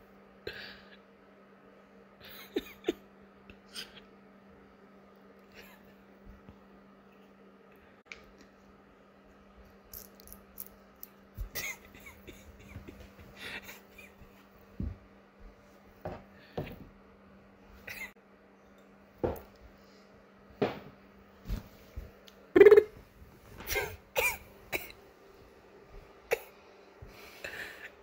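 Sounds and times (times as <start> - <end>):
faint steady hum: 0.0 - 28.0
person coughing: 2.3 - 3.0, 23.6 - 25.0, 26.3 - 26.5.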